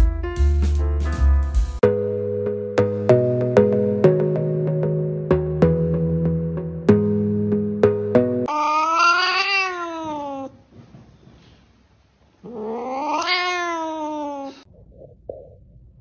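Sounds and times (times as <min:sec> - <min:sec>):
cat yowling: 0:08.5 - 0:10.6, 0:12.4 - 0:14.7.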